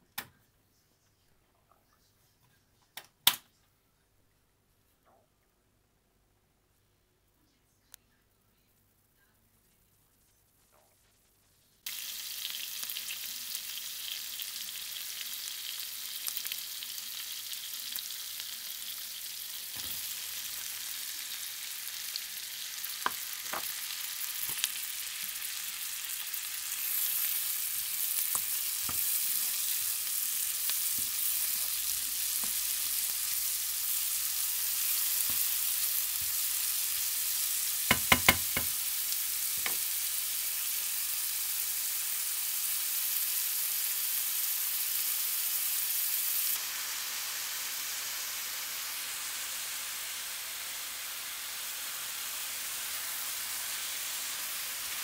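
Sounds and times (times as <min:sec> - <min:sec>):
onions and mushrooms sizzling in pan: 0:10.7 - 0:55.0
wooden spatula knocking on pan: 0:37.9 - 0:38.7.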